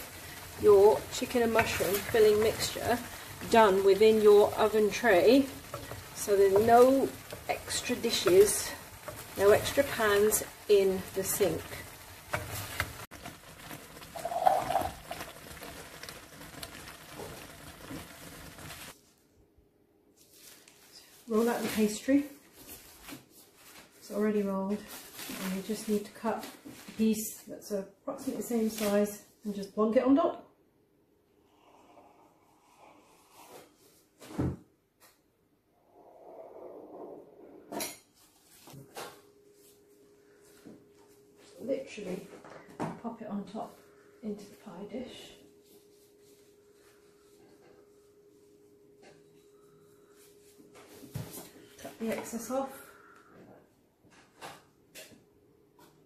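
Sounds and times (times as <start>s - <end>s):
thick sauce simmering: 0.0s - 19.0s
spoon scraping and stirring: 1.4s - 10.8s, 11.5s - 18.9s.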